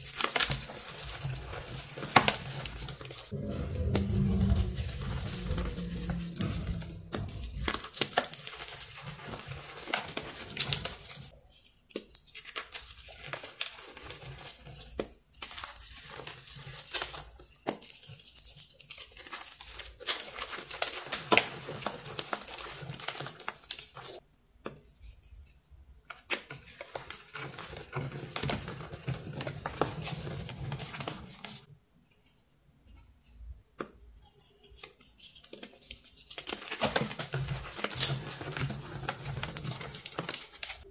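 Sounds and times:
hands crushing chalk blocks: 0.0s - 3.2s.

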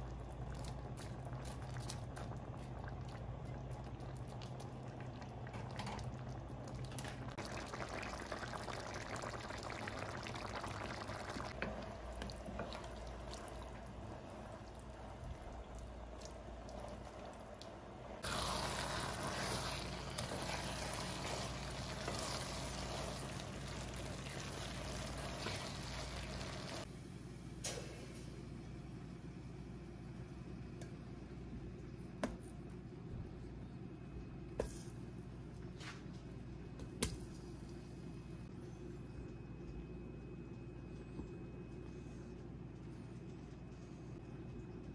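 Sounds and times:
liquid bubbling and sloshing in pot: 0.0s - 26.9s.

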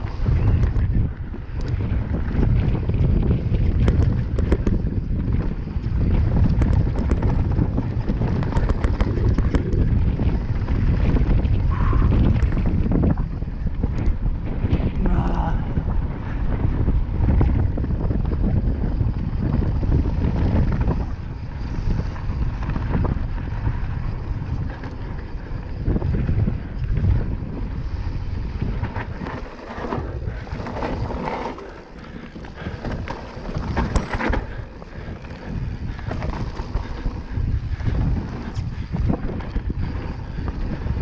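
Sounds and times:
bike rattling and knocking: 0.0s - 41.0s
wind rushing over microphone: 0.0s - 41.0s
tyres on gravel: 27.8s - 41.0s.

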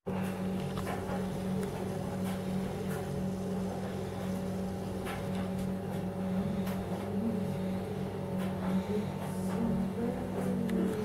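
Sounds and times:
low motor hum: 0.1s - 11.0s.

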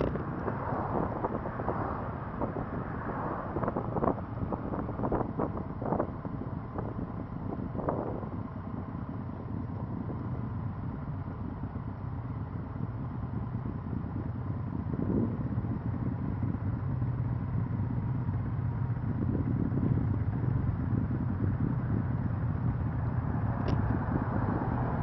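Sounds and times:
motorcycle engines running: 0.0s - 25.0s.

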